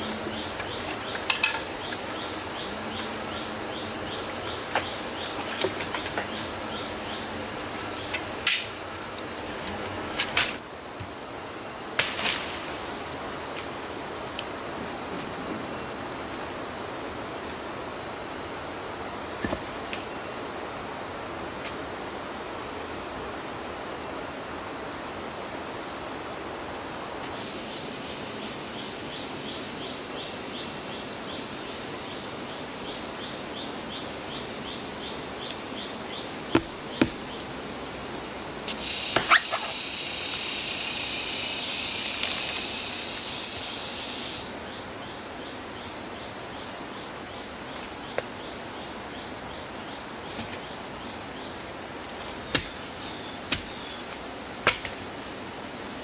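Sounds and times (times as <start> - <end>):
forest background noise: 0.0 - 56.0
loud high hiss: 26.3 - 46.5
machete chopping wood: 36.5 - 37.2, 52.5 - 52.8, 54.6 - 55.0.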